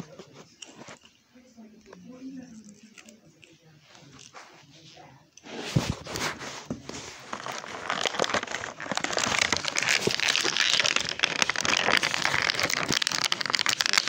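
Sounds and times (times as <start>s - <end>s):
plastic packaging crinkling: 5.8s - 14.0s.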